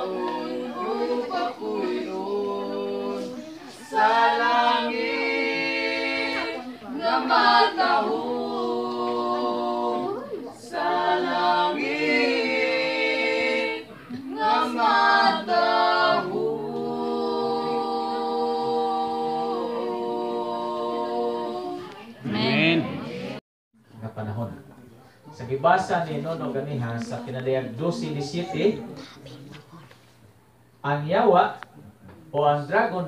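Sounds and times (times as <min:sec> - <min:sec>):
people singing a cappella: 0:00.0 - 0:23.4.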